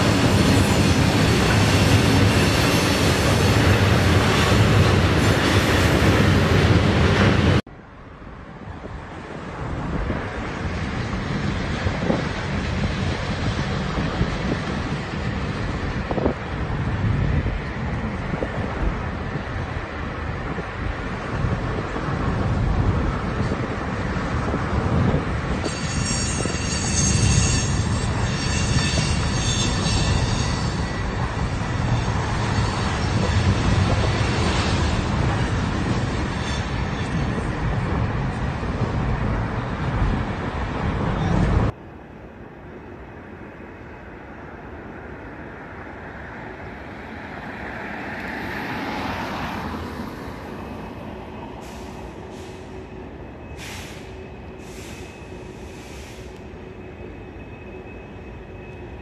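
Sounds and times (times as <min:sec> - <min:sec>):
train rumbling: 0:00.0 - 0:59.0
wheels squealing on rails: 0:23.2 - 0:40.0, 0:46.1 - 0:59.0.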